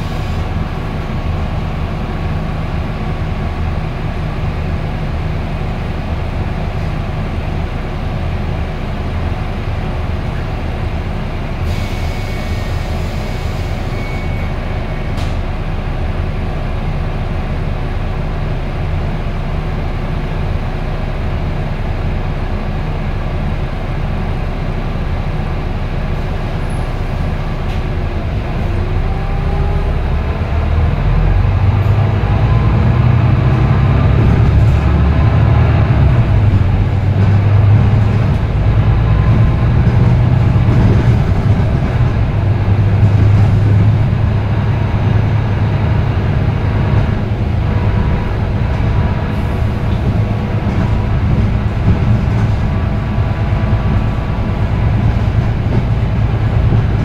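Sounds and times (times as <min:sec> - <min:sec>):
bus engine hum from inside: 0:00.0 - 0:57.0
rising whine: 0:28.2 - 0:40.0.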